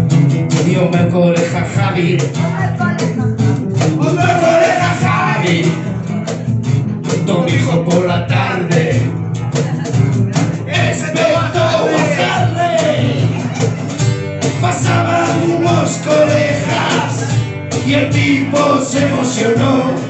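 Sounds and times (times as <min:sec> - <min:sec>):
cajon: 0:00.0 - 0:20.0
strummed acoustic guitar: 0:00.0 - 0:20.0
upright double bass: 0:00.0 - 0:20.0
man singing into a microphone: 0:00.6 - 0:05.9, 0:07.1 - 0:09.1, 0:10.6 - 0:13.4, 0:14.6 - 0:20.0.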